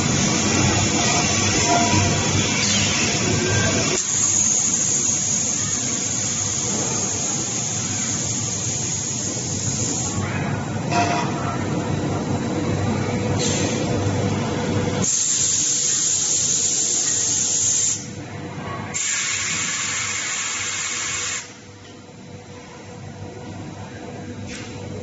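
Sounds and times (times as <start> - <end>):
loud high hiss: 0.0 - 10.2.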